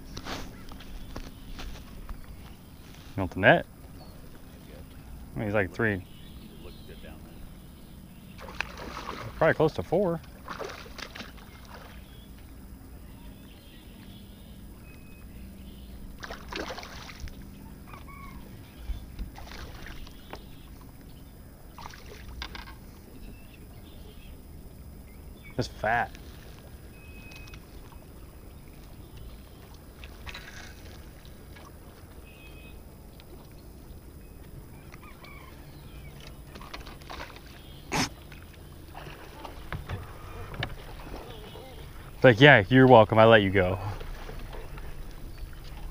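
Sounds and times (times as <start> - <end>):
steady low hum: 0.0 - 45.9
fish splashing at the surface: 8.4 - 9.5, 10.3 - 12.0, 16.2 - 17.4, 19.4 - 20.0, 21.8 - 22.4.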